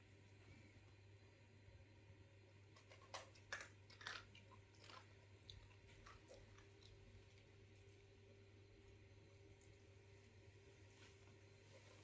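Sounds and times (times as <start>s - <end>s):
cat crunching food: 2.6s - 8.4s.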